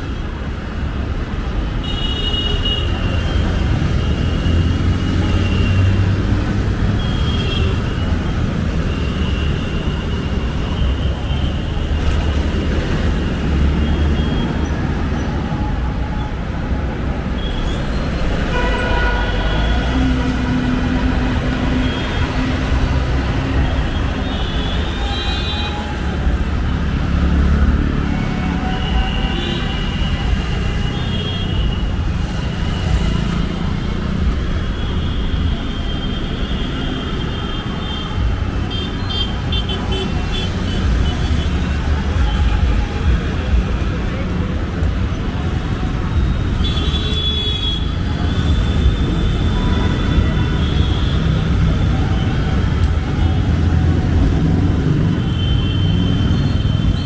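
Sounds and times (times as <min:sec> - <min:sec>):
traffic rumble: 0:00.0 - 0:57.0
vehicle horns honking: 0:17.4 - 0:20.1, 0:46.6 - 0:51.5.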